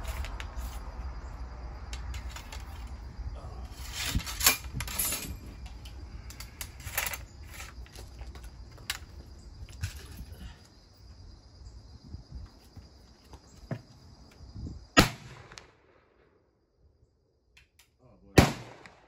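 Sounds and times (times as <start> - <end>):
metal ramrod clinking: 3.9 - 5.4.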